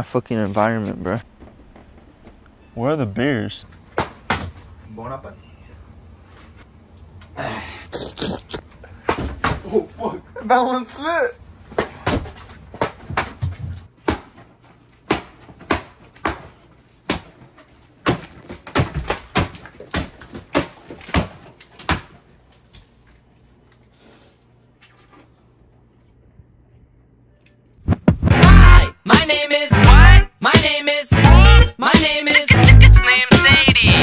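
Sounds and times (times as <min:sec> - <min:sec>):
watermelon wet thuds: 0:11.7 - 0:22.9
music: 0:28.0 - 0:34.0.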